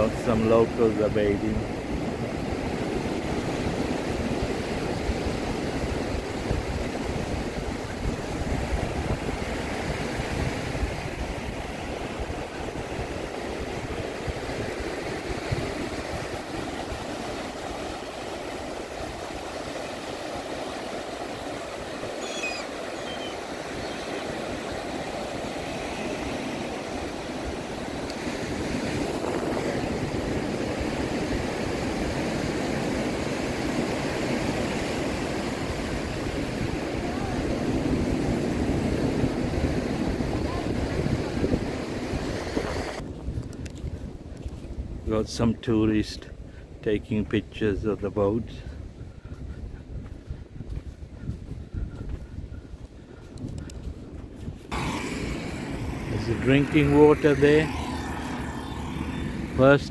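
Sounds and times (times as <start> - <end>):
waves breaking on a beach: 0.0 - 59.9
rough low rumble: 54.7 - 59.9.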